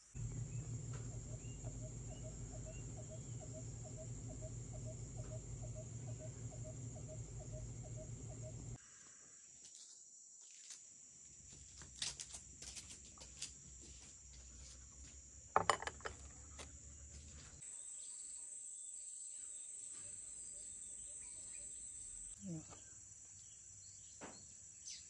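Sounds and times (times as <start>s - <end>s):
high-pitched insect chorus: 0.1s - 15.2s.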